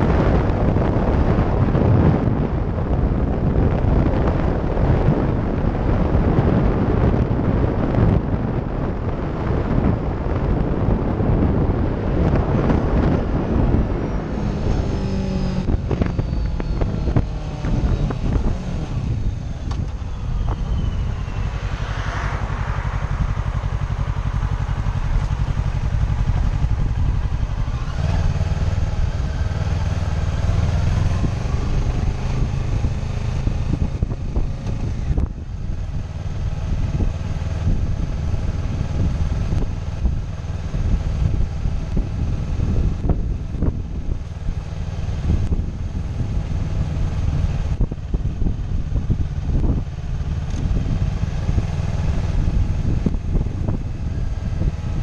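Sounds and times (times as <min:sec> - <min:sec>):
motorcycle engine running: 0:00.0 - 0:55.0
wind buffeting microphone: 0:00.0 - 0:55.0.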